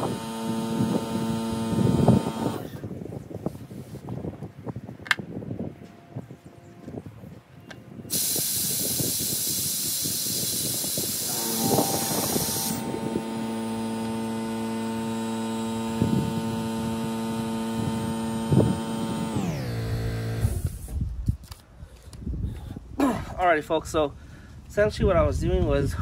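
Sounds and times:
air compressor motor hum: 0.0s - 2.9s, 8.1s - 20.9s
compressed air rushing hiss: 8.1s - 13.5s.

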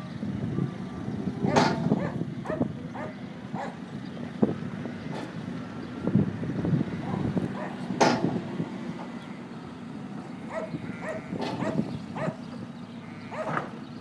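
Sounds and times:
diesel engine running: 0.0s - 14.0s
metal clank: 1.5s - 2.0s, 8.0s - 8.4s.

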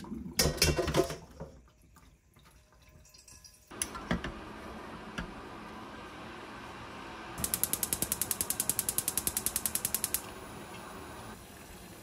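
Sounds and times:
gas stove igniter ticking: 7.4s - 10.5s.

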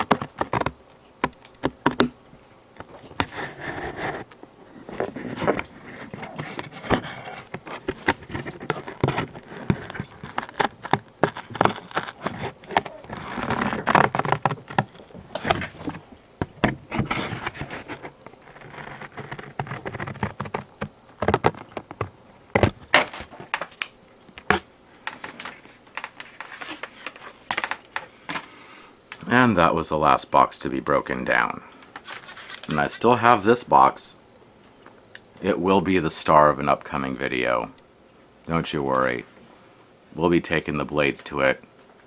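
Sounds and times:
cardboard box crackling and snapping: 0.0s - 2.2s, 5.1s - 24.6s.

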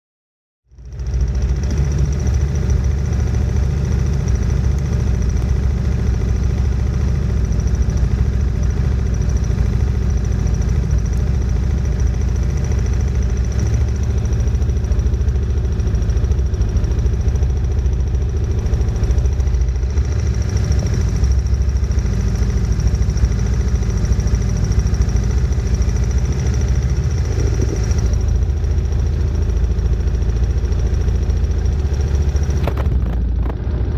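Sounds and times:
atv engine idling: 0.7s - 33.9s.

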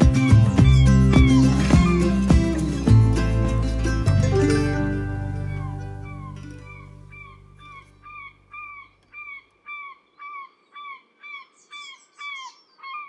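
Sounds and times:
closing music: 0.0s - 8.2s.

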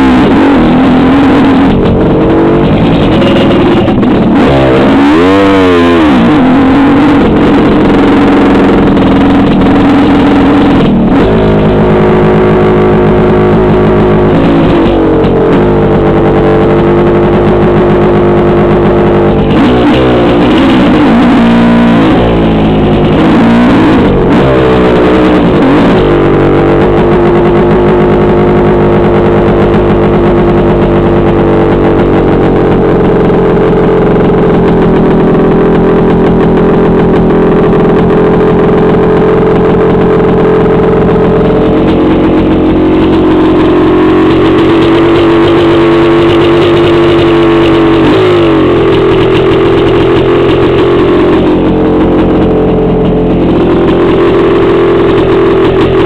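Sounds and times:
dirt bike engine running: 0.0s - 56.0s.

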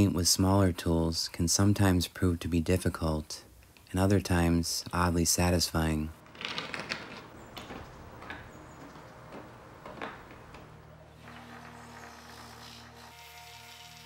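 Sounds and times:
hand tool scraping paint: 11.2s - 14.0s.

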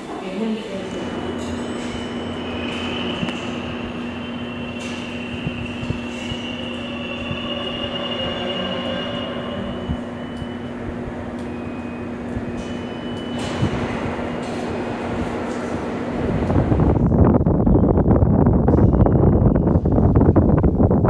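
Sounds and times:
train rumble: 0.0s - 21.0s
high wheel squeal: 1.2s - 14.0s.

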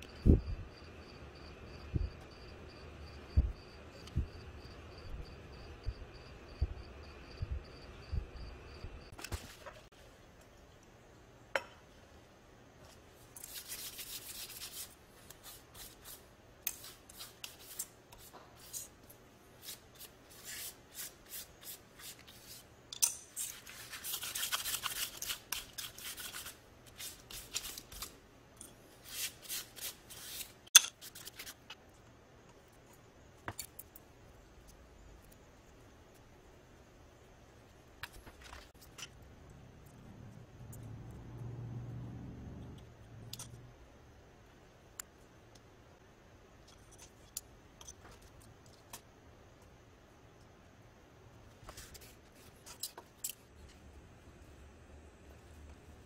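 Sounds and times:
rasping rustling of sheet liner: 23.4s - 28.2s.

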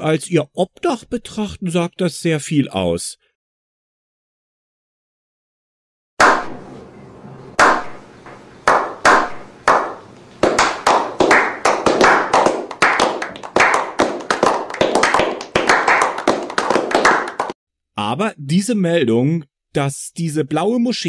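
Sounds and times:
men clapping: 8.7s - 17.6s.

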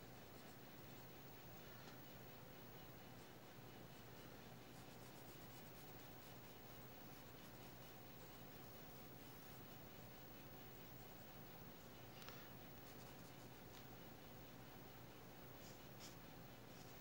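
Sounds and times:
low steady hum: 0.0s - 17.0s
pencil scratching on paper: 4.6s - 10.2s.

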